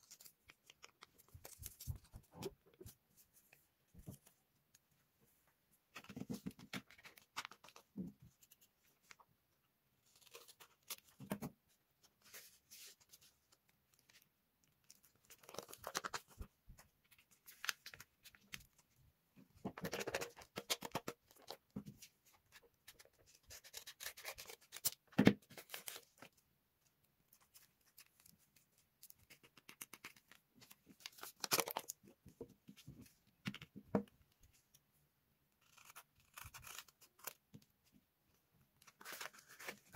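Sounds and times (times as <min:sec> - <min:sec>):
paper rustling and crinkling: 0:00.0 - 0:04.4, 0:38.8 - 0:39.9.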